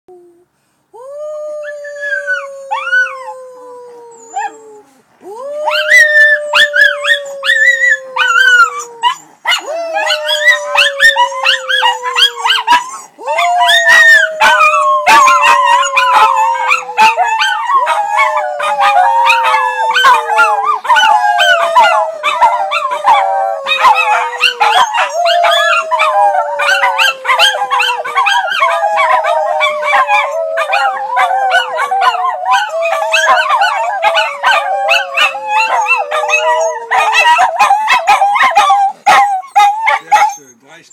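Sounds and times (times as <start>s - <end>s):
dogs howling: 5.6s - 40.5s
dogs yipping: 13.9s - 40.6s.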